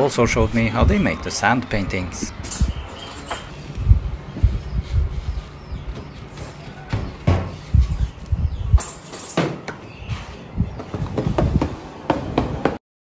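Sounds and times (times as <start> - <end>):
knocks and thumps on worktable: 6.9 - 7.6, 10.8 - 12.8.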